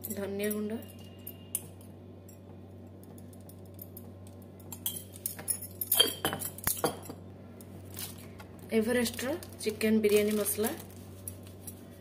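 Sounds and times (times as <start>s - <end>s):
kitchen utensils clinking: 4.7s - 7.2s.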